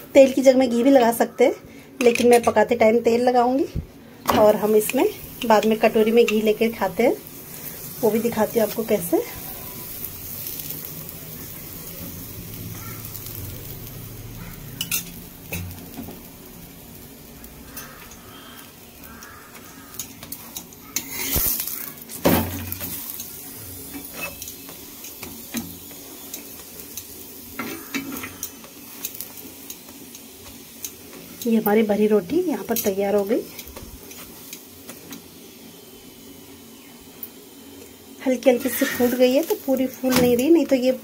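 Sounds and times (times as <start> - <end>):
flatbread sizzling in oil: 2.0 - 41.0
metal spatula scraping griddle: 19.1 - 24.7, 38.5 - 39.9.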